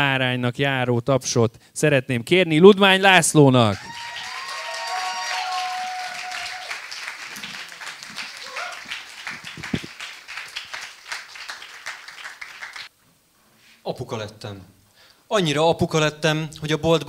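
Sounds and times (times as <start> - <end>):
audience applauding: 3.8 - 12.9.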